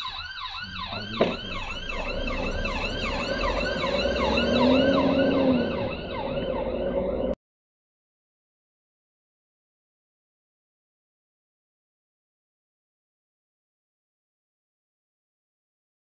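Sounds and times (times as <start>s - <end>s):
ambulance siren yelping: 0.0s - 7.4s.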